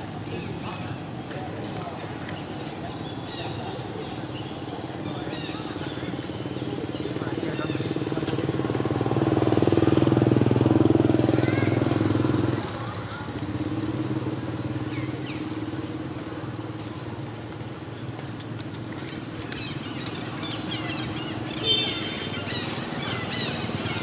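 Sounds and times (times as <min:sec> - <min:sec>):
birds chirping: 0:00.0 - 0:24.0
motor engine running: 0:06.1 - 0:24.0.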